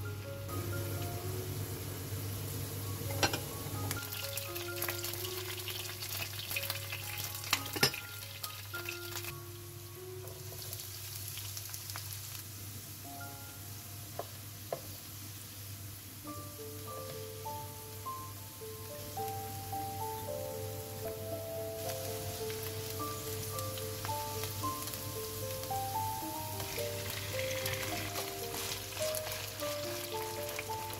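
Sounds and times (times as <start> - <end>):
food sizzling: 0.0 - 30.9.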